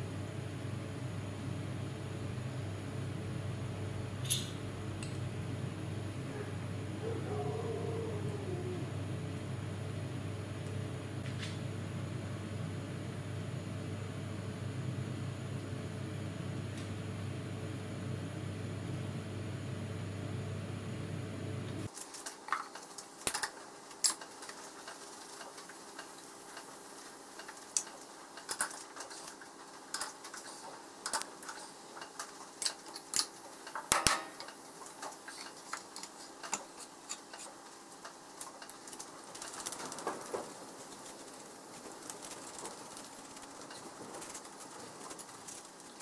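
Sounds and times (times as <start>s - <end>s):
steady hum: 0.0s - 21.9s, 25.2s - 46.0s.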